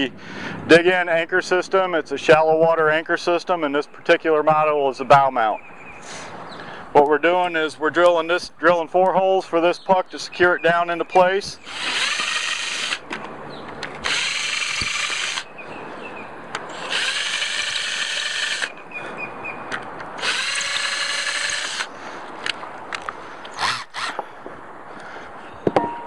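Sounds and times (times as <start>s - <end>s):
cordless drill drilling: 11.6s - 13.0s, 14.0s - 15.5s, 16.7s - 18.7s, 20.2s - 21.9s, 23.5s - 24.2s.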